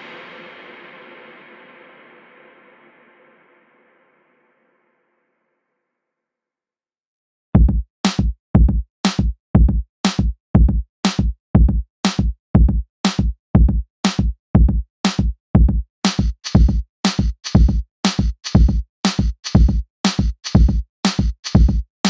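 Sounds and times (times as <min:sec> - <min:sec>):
electronic drum beat: 0:07.6 - 0:22.0.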